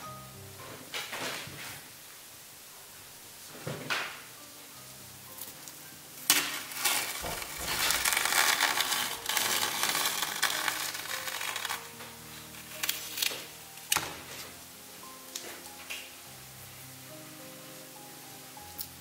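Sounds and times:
masking tape ripping off: 5.4s - 14.6s.

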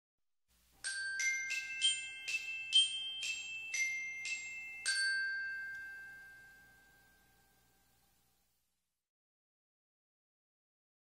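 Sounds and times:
bell-like jingle notes: 0.8s - 8.0s.

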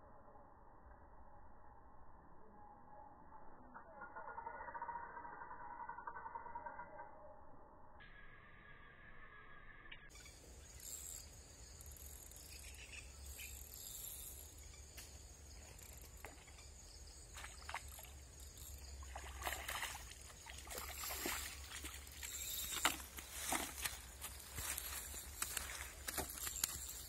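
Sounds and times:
high insect hum: 8.0s - 27.0s
short clicks and rustles: 21.9s - 27.0s.

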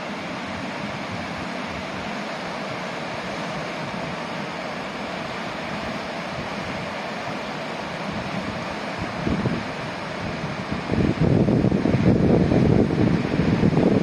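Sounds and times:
river rushing through rapids: 0.0s - 14.0s.

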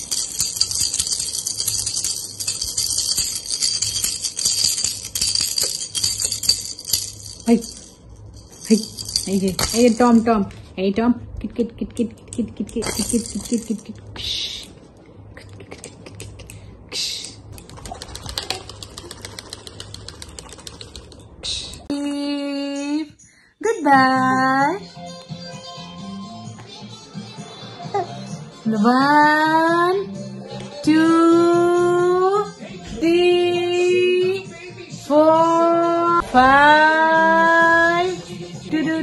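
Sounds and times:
baby rattle shaken: 0.0s - 10.5s, 12.6s - 14.0s, 17.5s - 21.4s.

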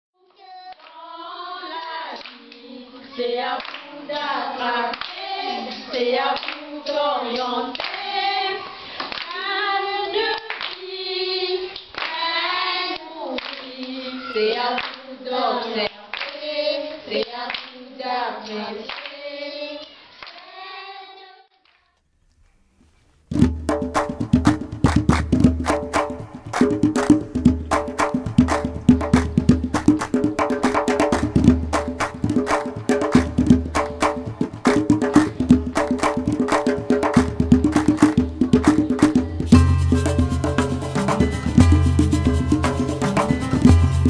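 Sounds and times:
children singing: 0.4s - 21.4s, 37.9s - 43.8s
children clapping hands: 3.6s - 3.9s, 4.9s - 6.6s, 7.7s - 8.0s, 9.0s - 9.3s, 10.4s - 10.8s, 11.8s - 12.2s, 12.9s - 15.0s, 16.1s - 16.4s, 18.9s - 19.1s, 19.8s - 20.5s, 24.0s - 39.2s.

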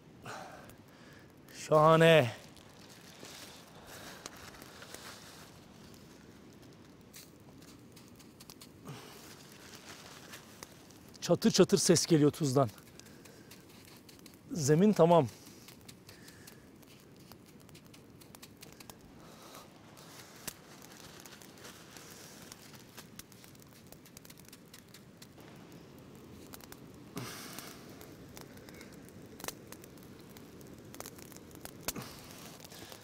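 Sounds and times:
salt paste crackling on hot stone: 0.1s - 33.0s
scrape or rustle: 2.9s - 6.0s
small pops and clicks: 5.8s - 33.0s.

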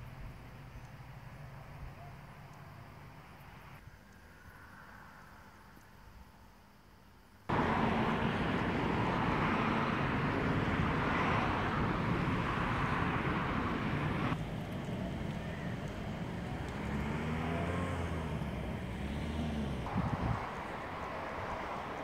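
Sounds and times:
loud steady rushing noise: 7.5s - 22.0s.

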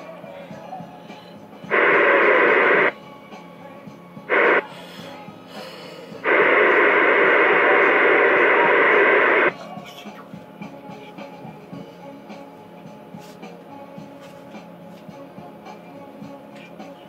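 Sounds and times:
radio static bursts: 1.7s - 2.9s, 4.3s - 4.6s, 6.2s - 9.5s.

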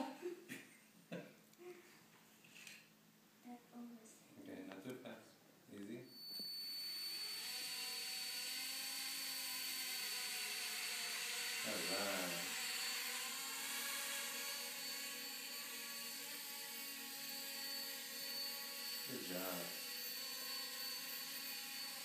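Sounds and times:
toy helicopter whirring: 6.7s - 22.0s.

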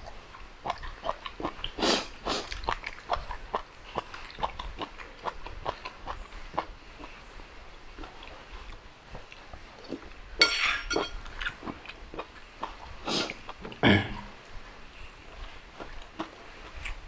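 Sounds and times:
chewing and wet mouth noises: 0.0s - 17.0s
metal spoon clinking on bowl: 10.4s - 11.2s.

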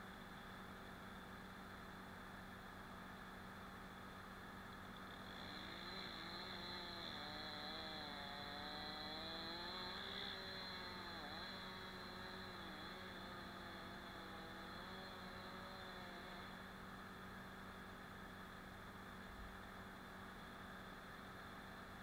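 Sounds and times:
chainsaw running at high revs: 4.9s - 16.8s.

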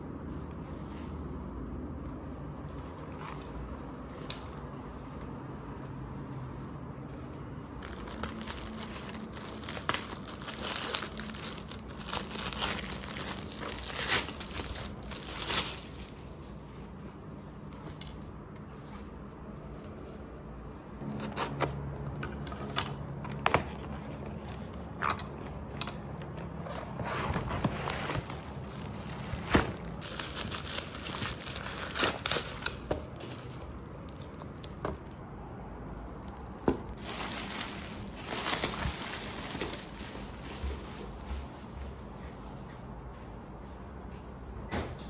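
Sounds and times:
packing tape tearing: 7.8s - 16.1s, 26.6s - 35.2s
plastic packaging crinkling: 7.8s - 16.3s, 23.3s - 35.2s, 36.0s - 40.8s
cardboard clicks and scrapes: 26.6s - 30.0s.

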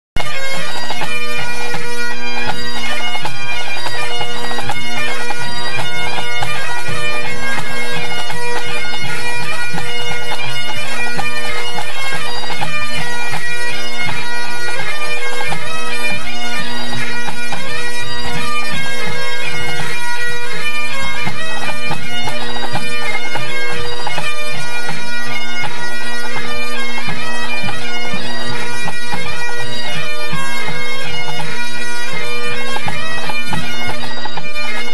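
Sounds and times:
bagpipes playing: 0.2s - 34.9s.

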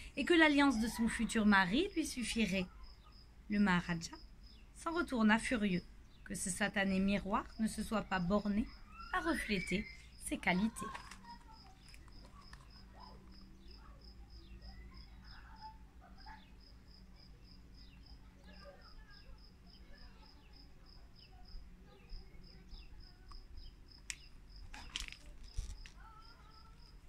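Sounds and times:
faint insect chirping: 0.0s - 27.0s.

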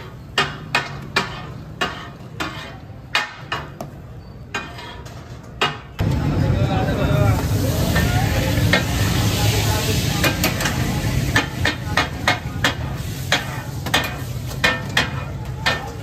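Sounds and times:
metal utensils scraping iron pan: 0.3s - 5.9s, 10.2s - 16.0s
frying sizzle: 6.0s - 16.0s.

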